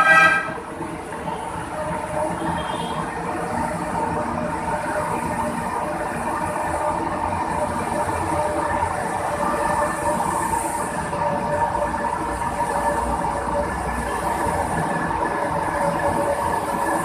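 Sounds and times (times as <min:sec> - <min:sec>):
light rail train passing: 0:00.0 - 0:17.0.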